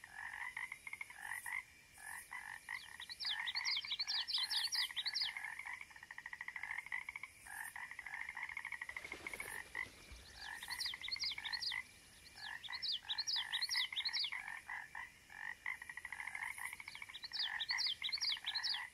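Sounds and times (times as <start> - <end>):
frogs trilling and chirping: 0.0 - 18.9.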